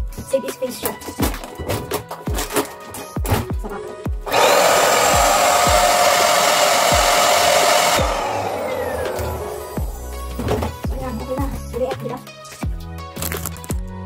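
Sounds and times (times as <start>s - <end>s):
background music with beat: 0.0s - 4.3s, 8.0s - 14.0s
handheld vacuum cleaner running: 4.2s - 10.6s
motor winding down whine: 4.3s - 10.4s.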